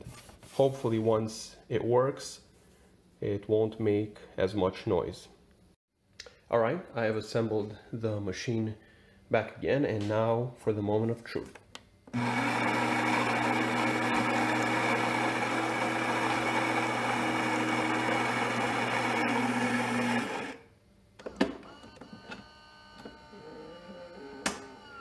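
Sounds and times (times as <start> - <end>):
espresso machine buzzing: 12.2 - 20.6.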